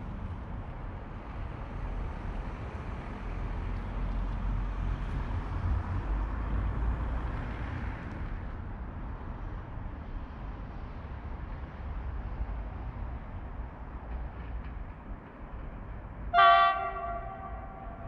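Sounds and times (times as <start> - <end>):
distant train rumbling: 13.8 - 18.0.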